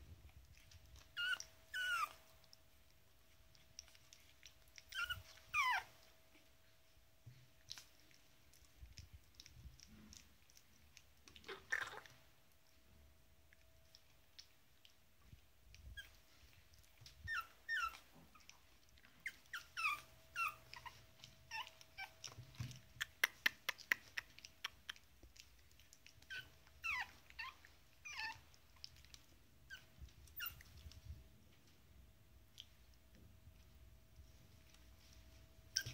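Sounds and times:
puppy whimpering in high squeaks: 1.0s - 2.3s, 4.8s - 6.0s, 15.9s - 16.2s, 17.1s - 18.6s, 19.2s - 23.2s, 26.2s - 28.5s, 29.7s - 30.9s, 35.7s - 35.9s
mouth clicking on bottle teat: 15.8s - 29.3s.

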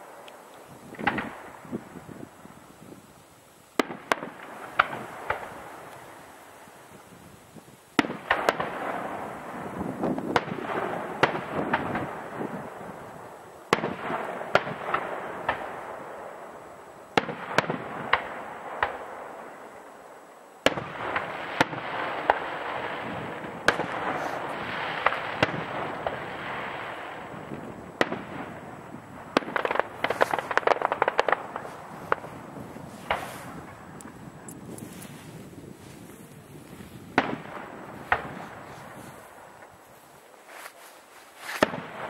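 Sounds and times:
firework shells bursting: 0.0s - 2.2s, 3.2s - 7.2s, 20.6s - 39.8s, 41.4s - 42.0s
firework crackling hiss: 0.0s - 42.0s.

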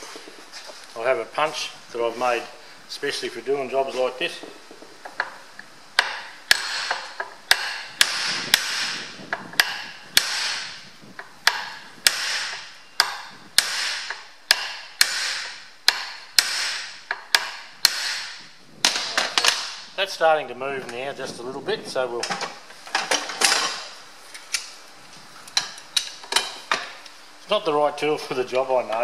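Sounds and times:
hammer striking steel punch: 6.0s - 10.8s, 11.5s - 19.7s.

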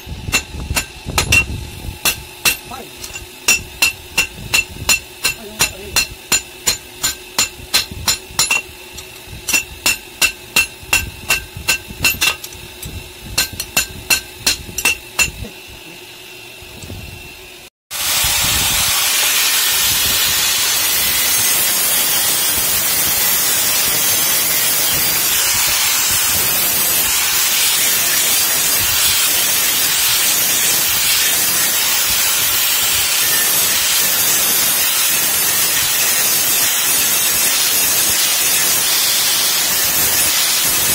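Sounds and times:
angle grinder grinding metal: 0.0s - 16.1s, 18.0s - 40.9s
hammer ringing on anvil: 0.3s - 12.6s, 13.4s - 15.4s.

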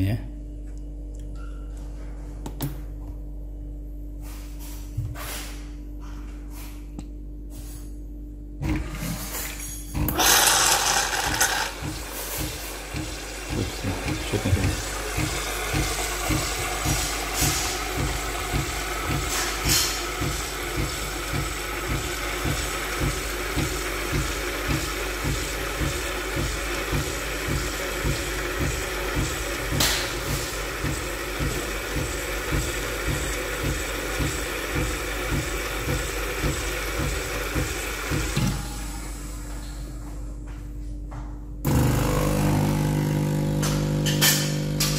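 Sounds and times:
rhythmic pulsing of frother pump: 10.0s - 39.8s, 41.7s - 44.9s
milk frother hissing: 10.1s - 38.5s, 41.7s - 44.9s.

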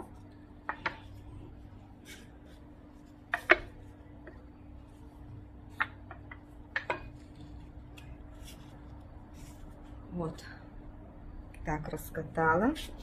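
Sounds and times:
faint steady hum: 0.0s - 13.0s
rolling pin knocking on wooden board: 3.2s - 4.4s, 5.7s - 7.2s.

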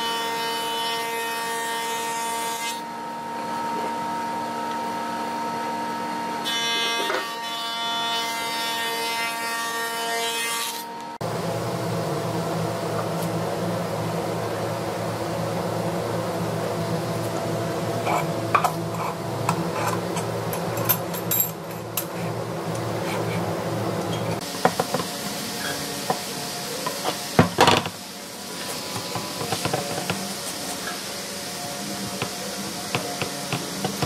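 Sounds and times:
steady low hum: 11.2s - 34.0s.

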